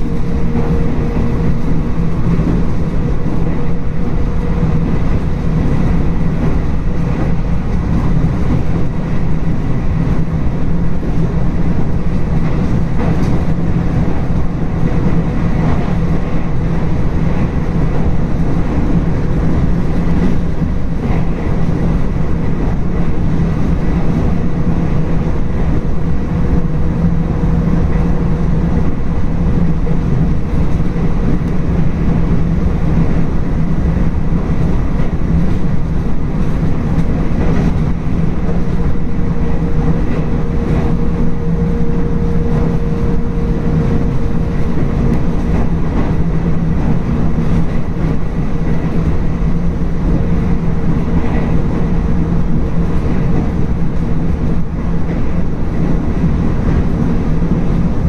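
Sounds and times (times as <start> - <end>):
train wheels rumbling on rails: 0.0 - 58.0
low hum: 22.6 - 55.6.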